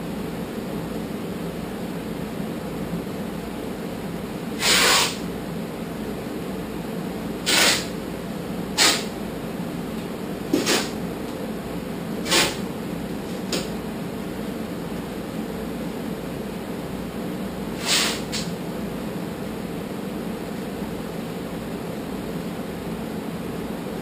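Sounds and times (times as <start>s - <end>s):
steady low hum: 0.0s - 24.0s
masking tape ripping off roll: 4.6s - 5.2s, 7.5s - 7.9s, 12.3s - 12.6s.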